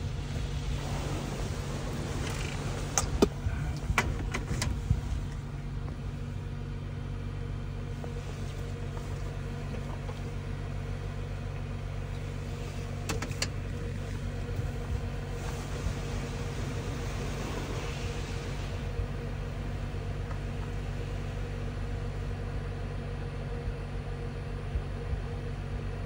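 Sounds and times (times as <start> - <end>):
car wash machinery hum: 0.0 - 26.0.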